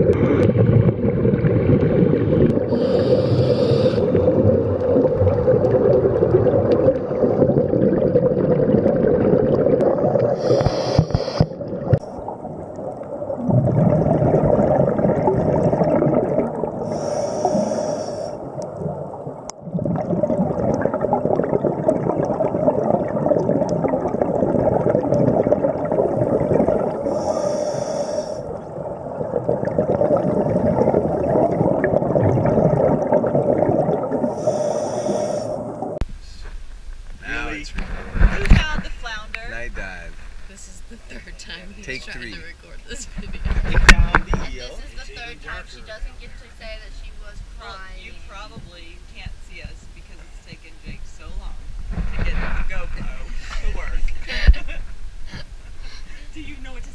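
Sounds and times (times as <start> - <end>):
underwater bubbles rumbling: 0.0 - 56.9
hissing regulator breaths: 2.7 - 4.2, 10.4 - 11.6, 16.8 - 18.4, 27.1 - 28.5, 34.3 - 35.8.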